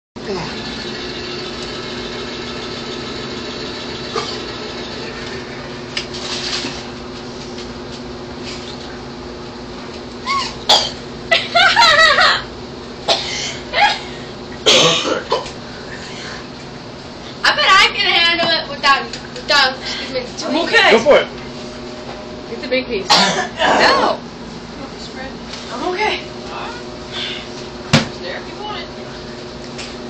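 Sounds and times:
steady low hum: 0.2s - 30.0s
boy laughing: 10.2s - 10.6s, 11.3s - 12.5s
boy coughing and gasping: 13.1s - 14.0s, 14.6s - 15.5s, 23.1s - 24.2s.

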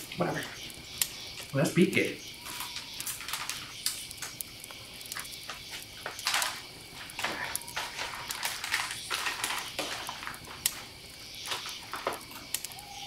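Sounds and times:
foil packaging crinkling and tearing: 2.4s - 4.4s, 5.2s - 12.2s.

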